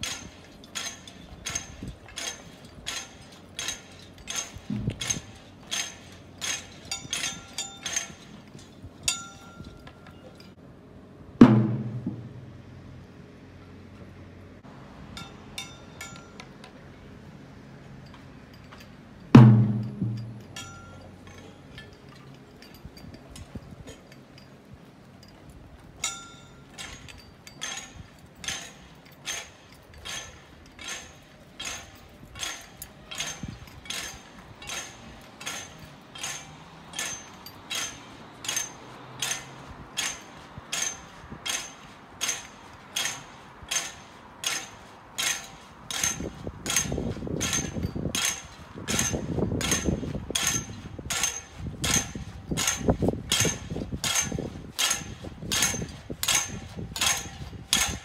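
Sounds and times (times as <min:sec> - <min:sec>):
sharp metallic taps: 0:00.0 - 0:10.5, 0:19.4 - 0:23.0, 0:26.0 - 0:58.0
low shuffling rumble: 0:11.4 - 0:13.2.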